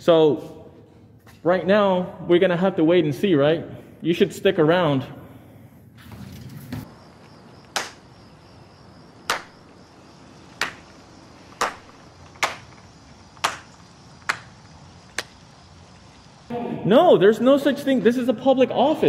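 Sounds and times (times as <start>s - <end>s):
person slow clapping: 7.7s - 8.0s, 9.3s - 9.6s, 10.6s - 10.9s, 11.6s - 12.7s, 13.4s - 14.5s.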